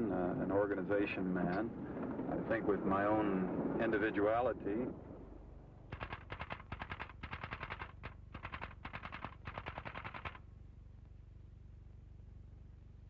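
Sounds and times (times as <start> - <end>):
typewriter keys striking: 6.0 - 10.4.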